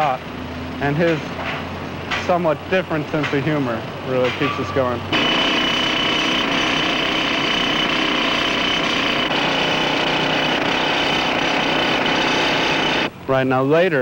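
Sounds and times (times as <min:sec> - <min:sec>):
pneumatic rock drill hammering: 0:00.8 - 0:13.1.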